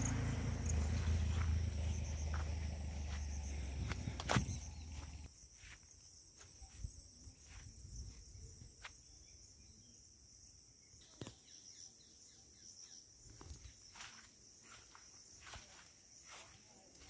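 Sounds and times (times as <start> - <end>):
insects chirring: 0.0 - 17.0
footfalls and rustles on grass: 0.7 - 8.2.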